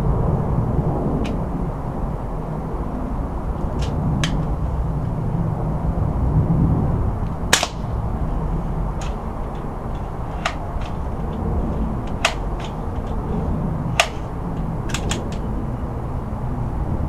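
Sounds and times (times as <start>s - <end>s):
background rumble: 0.0s - 17.0s
air rifle pump clicks: 7.5s - 8.0s, 9.0s - 15.5s.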